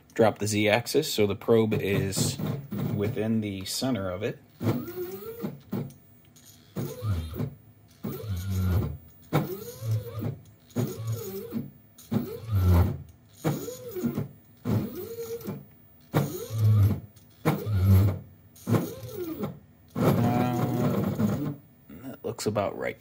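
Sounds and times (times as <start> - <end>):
motor whining in short moves: 4.6 - 21.6.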